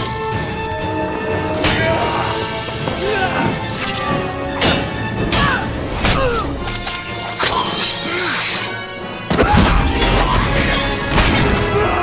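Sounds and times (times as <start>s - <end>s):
action film score: 0.0s - 12.0s.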